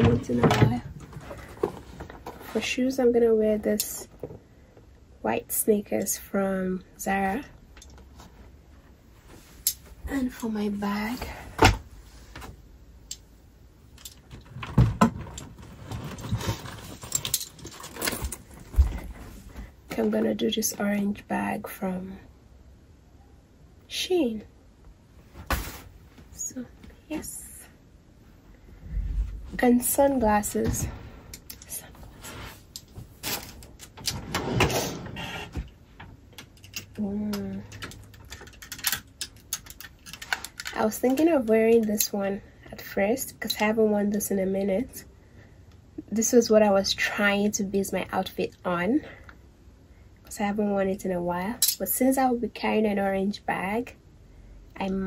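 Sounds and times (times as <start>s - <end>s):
dull thumps in closet: 0.0s - 2.3s, 18.1s - 20.0s.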